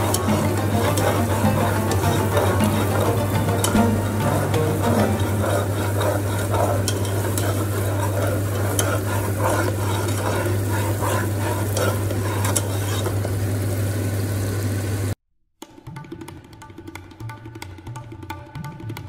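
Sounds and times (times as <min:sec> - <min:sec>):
spatula scraping and tapping pot: 0:00.0 - 0:13.4
rice sizzling in hot oil: 0:00.0 - 0:15.2.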